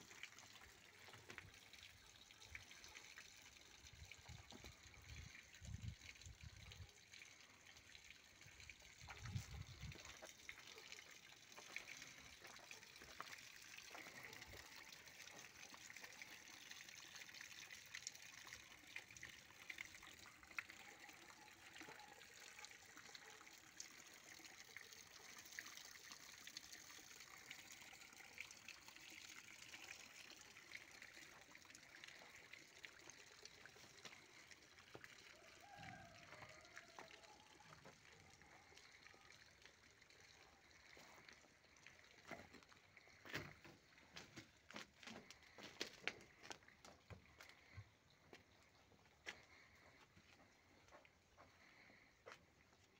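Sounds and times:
water trickling over stones: 0:00.0 - 0:52.9.

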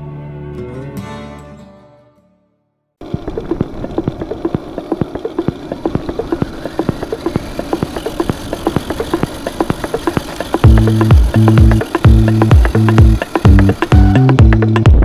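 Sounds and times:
electric drivetrain hum: 0:03.0 - 0:15.0
knocks and rattles of rc truck: 0:03.0 - 0:15.0.

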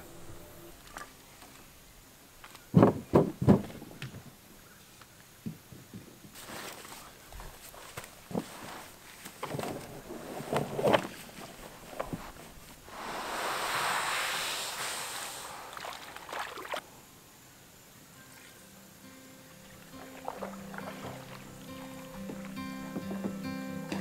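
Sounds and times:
canoe hull scraping over sand: 0:08.3 - 0:16.8.

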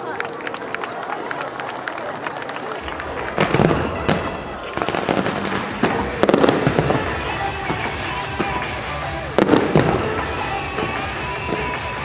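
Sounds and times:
fireworks crackling: 0:02.8 - 0:12.0
fireworks loud bangs: 0:02.8 - 0:12.0
music playing: 0:02.8 - 0:12.0.

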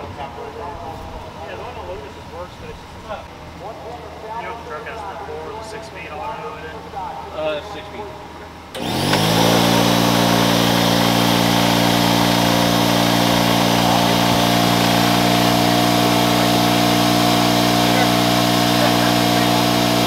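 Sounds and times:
truck engine starting and idling: 0:08.7 - 0:20.0.

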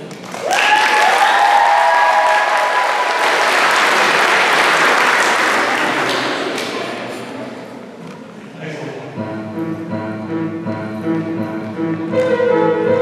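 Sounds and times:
audience applause: 0:00.0 - 0:07.0
high held cheers: 0:00.3 - 0:05.9.

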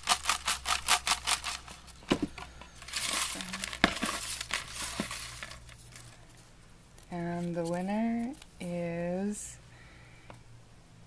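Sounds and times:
knocks against a box: 0:02.1 - 0:02.4
paper slips rustling in a box: 0:02.8 - 0:06.2.

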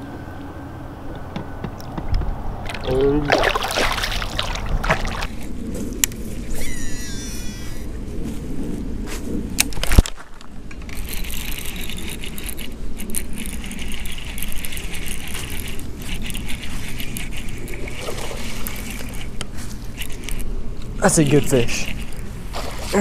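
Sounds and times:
fishing reel whirring: 0:10.9 - 0:20.5.

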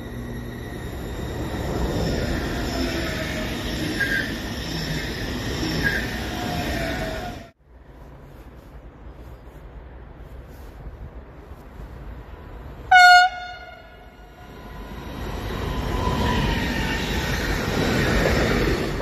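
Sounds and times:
train rumbling on rails: 0:00.0 - 0:19.0
locomotive horn blast: 0:12.9 - 0:14.2.

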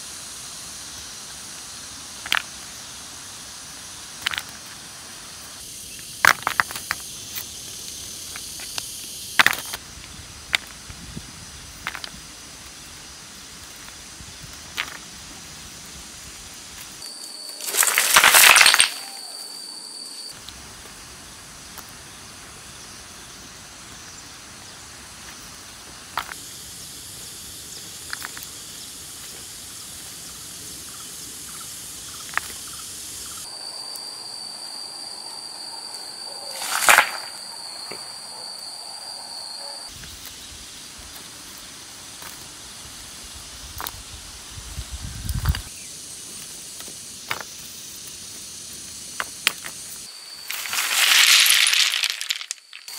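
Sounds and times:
high insect drone: 0:00.0 - 0:52.9
stones clicking: 0:04.2 - 0:04.6, 0:06.2 - 0:07.4, 0:09.4 - 0:09.8, 0:11.8 - 0:12.2, 0:14.7 - 0:15.1, 0:17.5 - 0:19.2, 0:26.2 - 0:26.4, 0:28.1 - 0:28.5, 0:36.6 - 0:37.3, 0:50.5 - 0:52.9
stones tipped onto a pile: 0:06.2 - 0:07.0, 0:09.4 - 0:09.8, 0:11.8 - 0:12.2, 0:14.7 - 0:15.0, 0:17.5 - 0:19.3, 0:36.6 - 0:37.3, 0:50.5 - 0:52.9.

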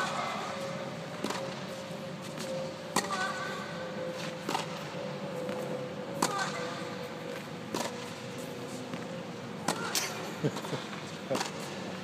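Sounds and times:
steady hum: 0:00.0 - 0:12.0
tennis ball hitting racket: 0:01.2 - 0:01.5, 0:02.4 - 0:03.5, 0:06.2 - 0:06.6, 0:07.3 - 0:08.2.

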